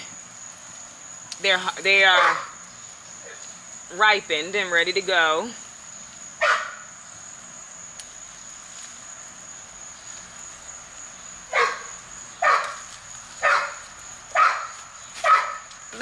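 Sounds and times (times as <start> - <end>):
crickets trilling: 0.0 - 16.0
dog barking: 2.2 - 2.6, 6.4 - 6.8, 11.5 - 12.8, 13.4 - 15.7.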